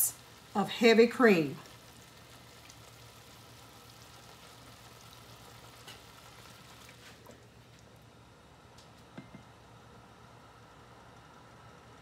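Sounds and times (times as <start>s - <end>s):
sauce sizzling in a skillet: 0.0s - 8.0s.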